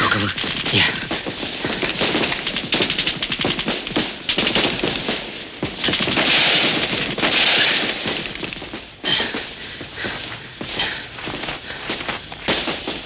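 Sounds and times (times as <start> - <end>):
rifle gunfire: 0.5 - 8.5.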